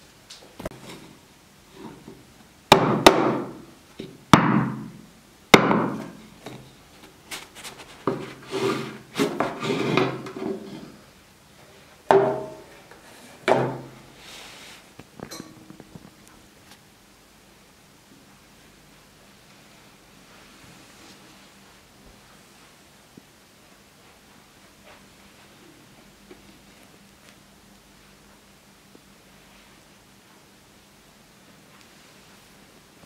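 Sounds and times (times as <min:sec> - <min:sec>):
loaf pan knocking on wooden board: 0:12.1 - 0:12.6.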